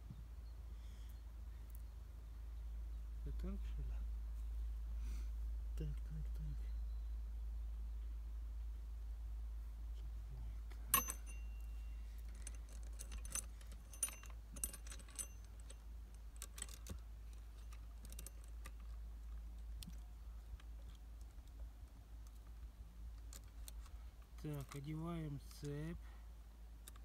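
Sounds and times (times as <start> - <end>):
sharp metallic click: 11.0 - 11.5
saw chain clinking and rattling: 11.0 - 15.8, 16.4 - 19.0.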